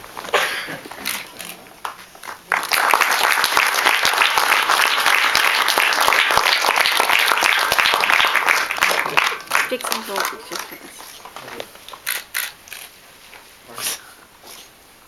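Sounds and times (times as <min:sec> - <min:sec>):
audience applauding: 0:01.8 - 0:12.5.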